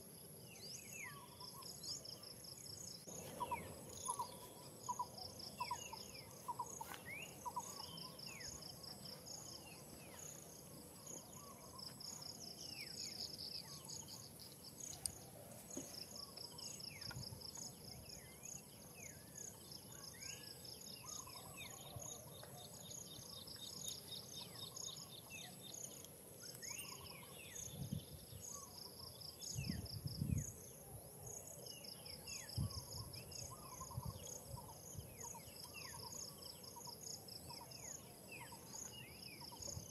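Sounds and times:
insects trilling: 0.0s - 39.9s.

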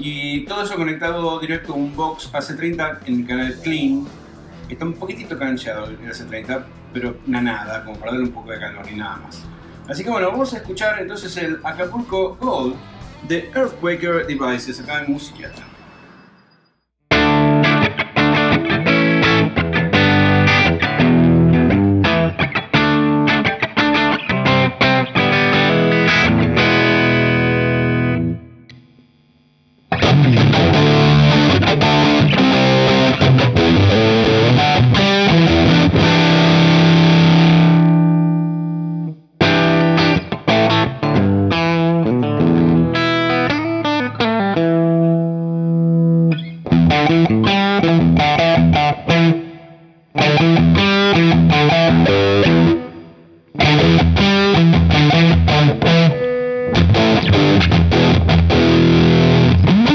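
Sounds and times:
electric guitar strumming: 17.1s - 28.8s, 29.9s - 59.9s.

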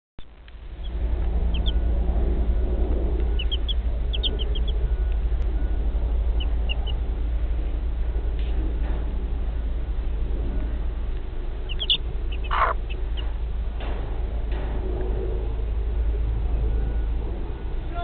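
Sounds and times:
low rumble: 0.2s - 18.0s
chicks peeping: 0.8s - 1.8s, 3.2s - 5.2s, 6.3s - 7.1s, 11.7s - 13.4s.

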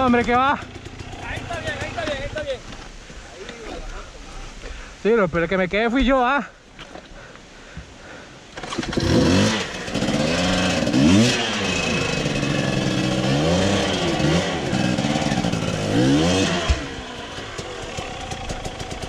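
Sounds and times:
motorcycle engine revving: 0.0s - 2.8s, 8.6s - 19.0s.

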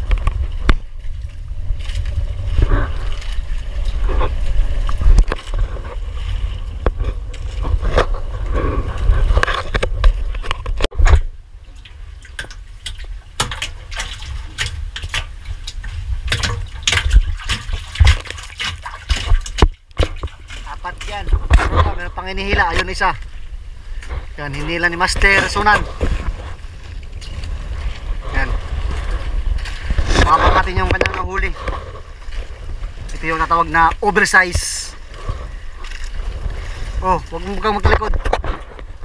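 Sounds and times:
low rumble: 0.0s - 12.2s
water splashing around boat: 0.0s - 39.0s.

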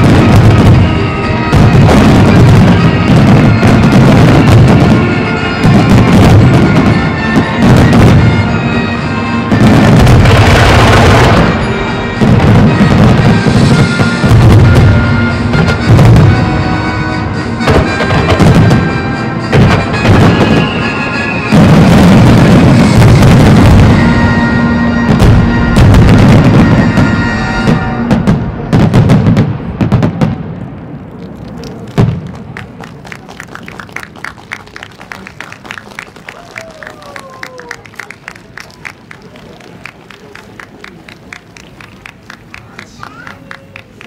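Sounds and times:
music soundtrack: 0.0s - 28.1s
fireworks bangs: 0.0s - 44.0s
fireworks crackling: 0.0s - 44.0s.

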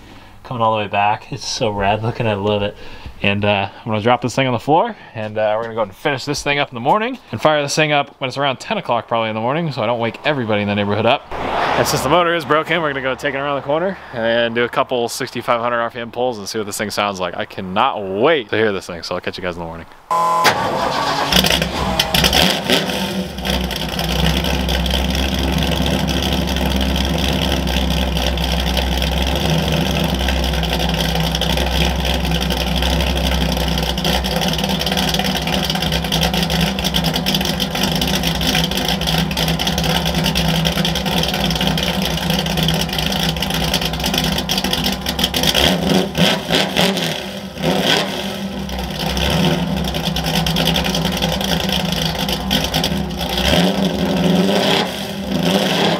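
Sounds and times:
engine revving: 10.3s - 14.4s, 20.1s - 55.9s
pickup engine idling: 20.1s - 55.9s.

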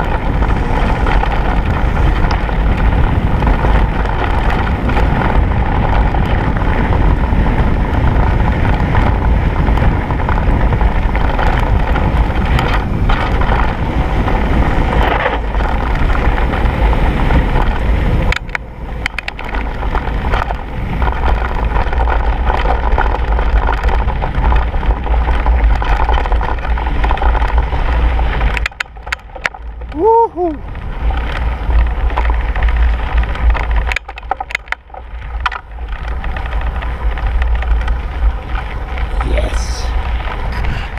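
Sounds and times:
bike frame rattle: 0.0s - 29.9s
bike tyres on gravel: 0.0s - 40.9s
wind buffeting microphone: 0.0s - 40.9s.

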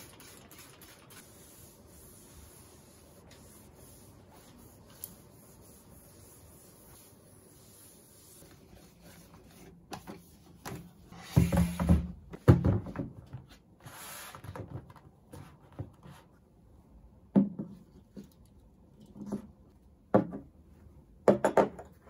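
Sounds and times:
objects knocking on a desk: 11.4s - 13.3s, 20.1s - 20.5s.

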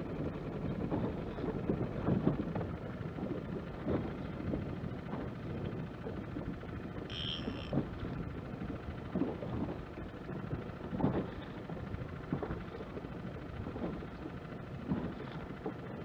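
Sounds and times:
wind buffeting microphone: 0.0s - 7.0s
water around boat: 0.0s - 16.0s
brief high tone: 7.1s - 7.7s.

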